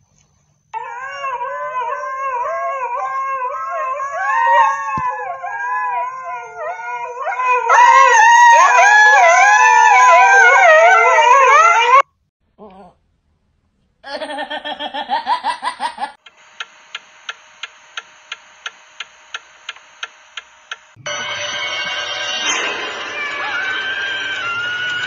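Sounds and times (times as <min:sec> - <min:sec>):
husky howling: 0:00.8 - 0:12.0.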